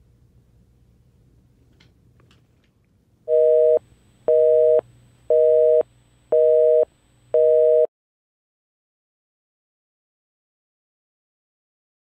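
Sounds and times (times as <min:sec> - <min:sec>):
telephone busy signal beeps: 0:03.3 - 0:07.9.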